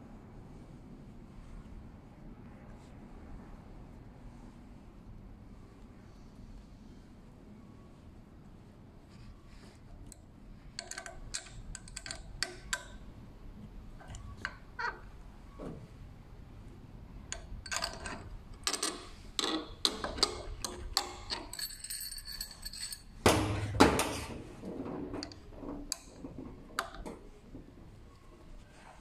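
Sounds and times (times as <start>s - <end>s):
metal parts clinking and knocking: 10.7s - 13.0s, 17.3s - 24.3s.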